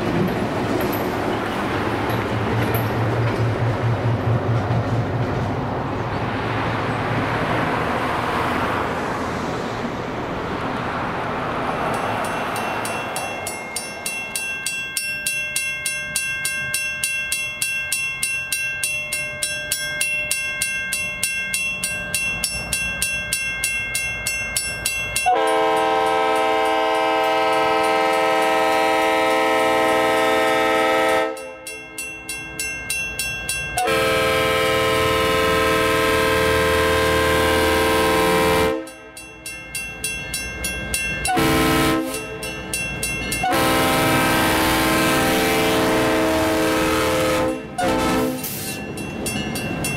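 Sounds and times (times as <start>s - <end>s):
railroad crossing bell ringing: 11.6s - 49.9s
locomotive air horn: 25.2s - 31.7s, 33.8s - 39.0s, 41.3s - 42.4s, 43.4s - 48.7s.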